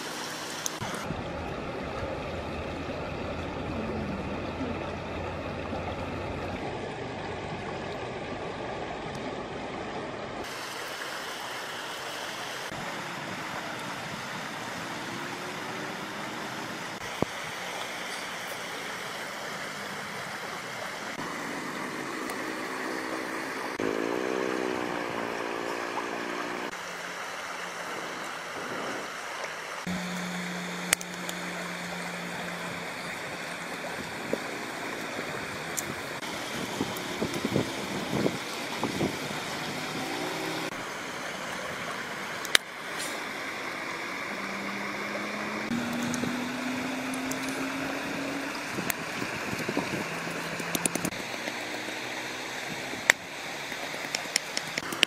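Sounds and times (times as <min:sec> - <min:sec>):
river flowing: 0:00.0 - 0:55.0.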